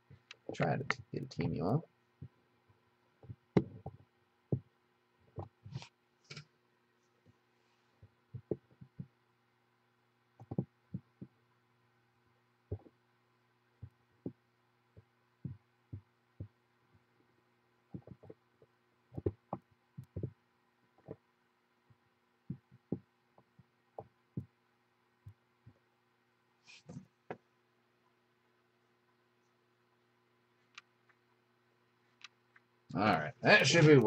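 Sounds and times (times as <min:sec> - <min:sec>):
low electrical hum: 0:00.0 - 0:34.0
soft handling knocks and clicks: 0:02.2 - 0:06.5, 0:08.0 - 0:09.2, 0:10.4 - 0:11.4, 0:17.9 - 0:21.3.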